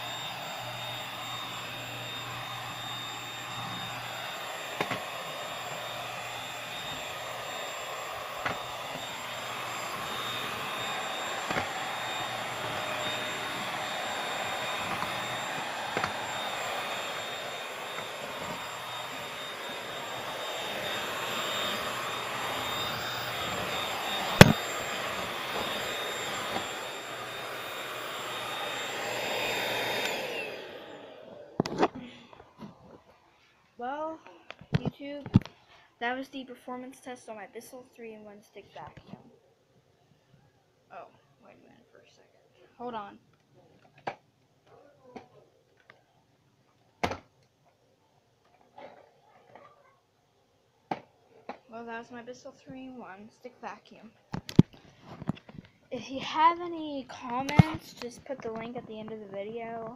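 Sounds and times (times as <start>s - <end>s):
vacuum motor whine: 0.0s - 33.0s.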